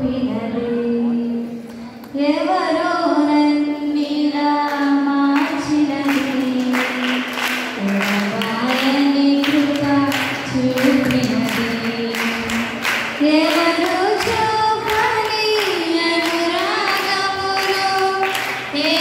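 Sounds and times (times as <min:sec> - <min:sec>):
women singing into microphones: 0:00.0 - 0:19.0
hand-clapping: 0:05.4 - 0:19.0.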